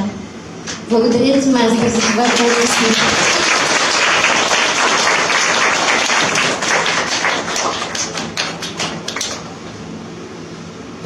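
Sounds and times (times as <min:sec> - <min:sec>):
audience applause: 0:01.9 - 0:09.5.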